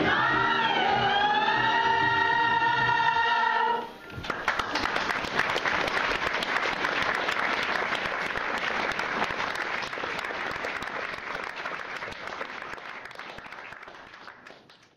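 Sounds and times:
audience applause: 4.1s - 14.9s.

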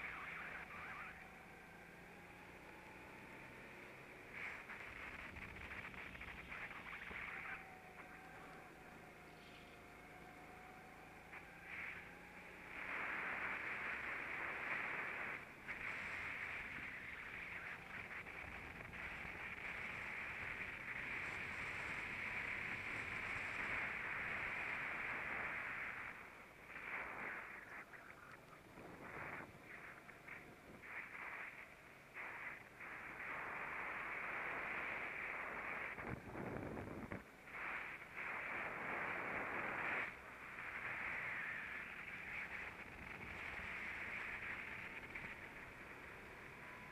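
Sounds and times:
go-kart engine and wind rushing: 4.9s - 27.6s, 34.2s - 46.9s.

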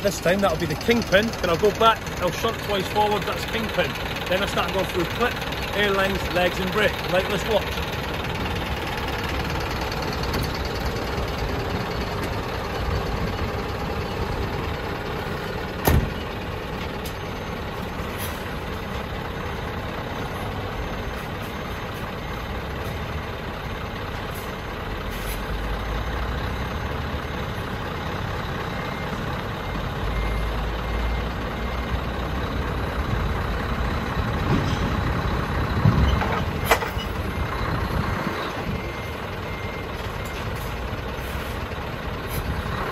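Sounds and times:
truck diesel engine running: 0.0s - 42.9s
reversing beeper: 28.7s - 32.2s, 35.9s - 41.6s
sharp metal clunk: 35.8s - 37.2s.

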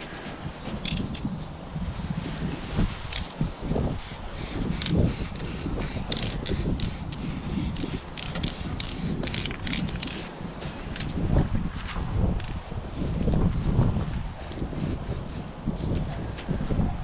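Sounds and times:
spray paint can hissing: 4.0s - 9.9s, 14.4s - 16.0s.

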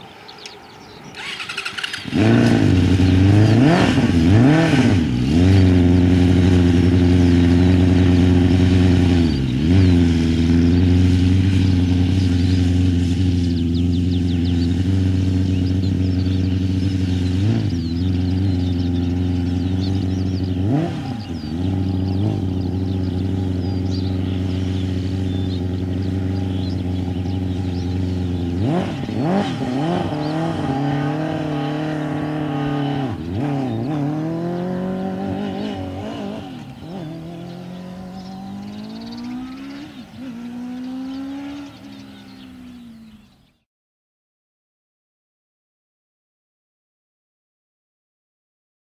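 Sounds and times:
race car engine running: 1.2s - 31.2s.

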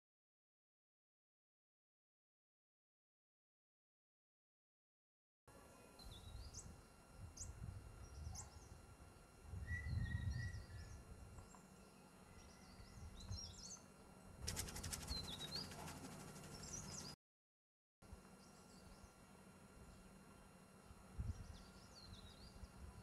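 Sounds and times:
small birds chirping: 7.4s - 8.8s, 9.7s - 17.2s
rapid even ticking or whirring: 14.4s - 17.0s.

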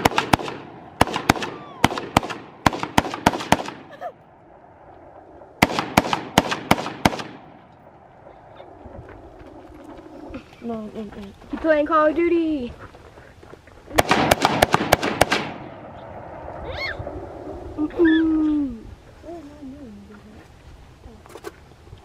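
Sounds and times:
rapid gunfire: 0.0s - 3.9s, 5.6s - 7.5s, 14.0s - 15.7s.

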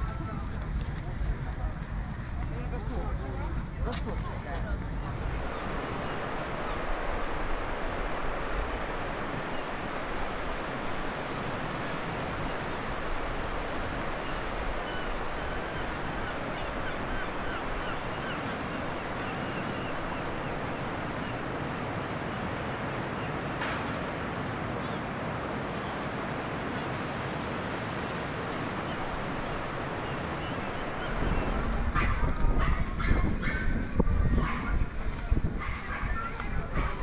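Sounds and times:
wind: 0.0s - 37.0s
surf rushing: 4.9s - 32.7s.

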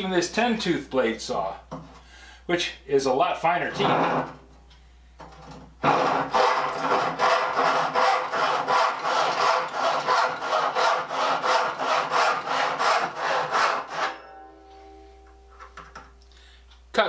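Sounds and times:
handsaw sawing wood: 5.8s - 14.2s.

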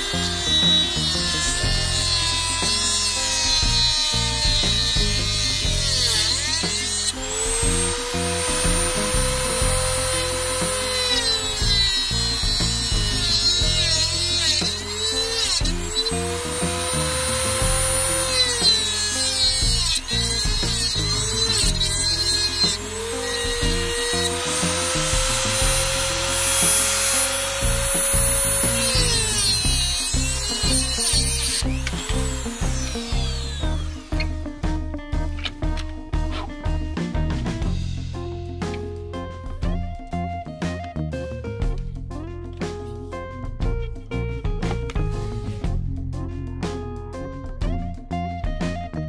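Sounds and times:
rotary tool cutting metal: 0.0s - 36.5s
background music: 0.0s - 49.0s.

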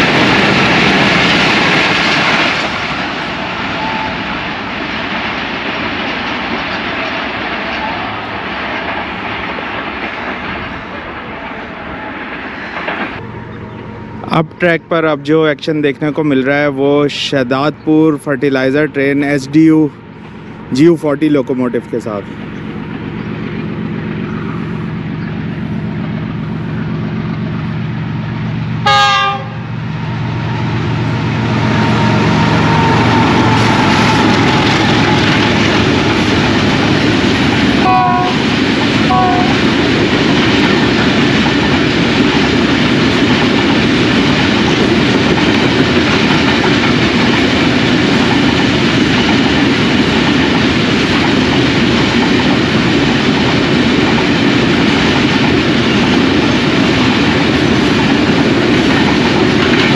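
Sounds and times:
diesel locomotive engine droning: 0.0s - 59.9s
train horn blasts: 28.8s - 29.7s, 31.5s - 35.5s, 37.8s - 39.7s.

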